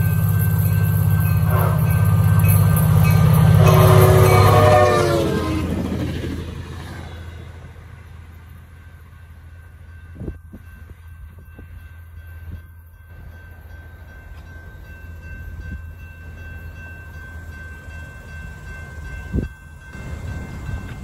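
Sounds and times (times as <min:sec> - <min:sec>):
distant train rumble: 0:00.0 - 0:21.0.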